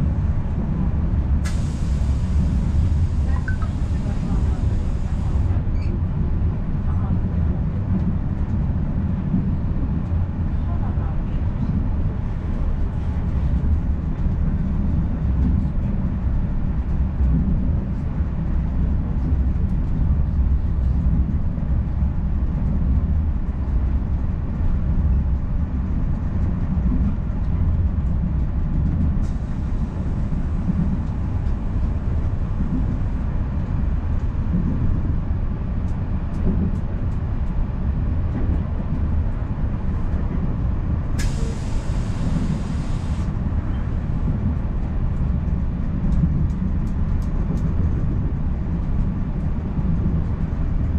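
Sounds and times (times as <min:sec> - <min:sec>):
train wheels rumbling on track: 0:00.0 - 0:50.9
hiss: 0:01.5 - 0:05.4, 0:41.2 - 0:43.3
sharp hiss: 0:41.2 - 0:43.3.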